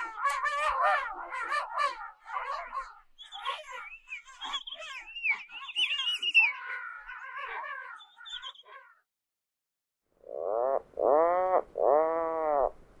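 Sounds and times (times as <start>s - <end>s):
gulls calling: 0.0s - 9.1s.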